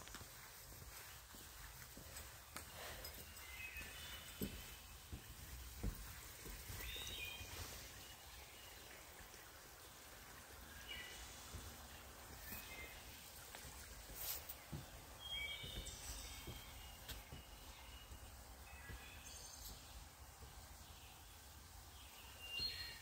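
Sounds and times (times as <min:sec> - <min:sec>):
footsteps on wooden boardwalk: 0:00.0 - 0:09.4, 0:10.4 - 0:20.6
bird chirping: 0:02.7 - 0:05.2, 0:06.5 - 0:09.0, 0:14.7 - 0:20.1, 0:22.0 - 0:23.0.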